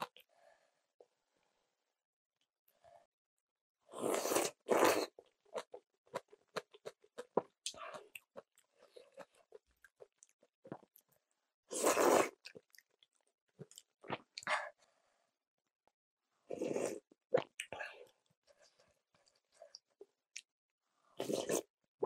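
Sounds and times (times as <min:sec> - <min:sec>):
slurping noodles: 0:03.9 - 0:05.8, 0:11.7 - 0:12.7, 0:16.5 - 0:17.5, 0:21.1 - 0:21.7.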